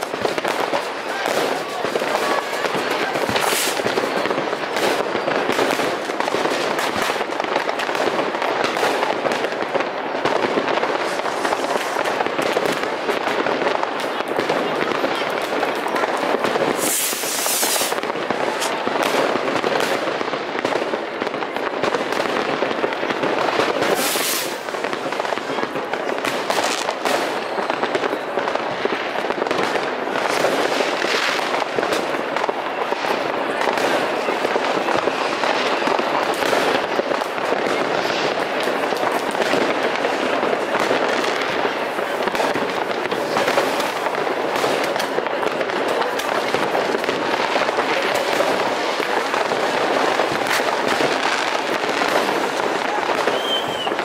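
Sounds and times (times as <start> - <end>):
fireworks crackling bangs: 0.0 - 54.0
sharp rocket hisses: 11.0 - 12.0, 16.8 - 18.0, 23.9 - 24.6.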